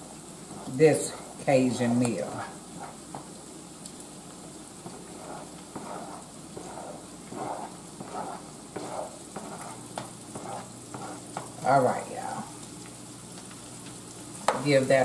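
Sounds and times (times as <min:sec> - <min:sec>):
onions sizzling in pan: 0:00.0 - 0:15.0
spoon scraping cutting board: 0:02.7 - 0:03.3, 0:04.8 - 0:11.6.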